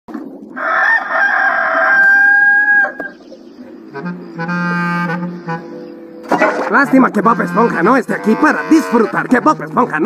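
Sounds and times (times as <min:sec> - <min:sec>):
rooster crowing: 0:00.6 - 0:03.1.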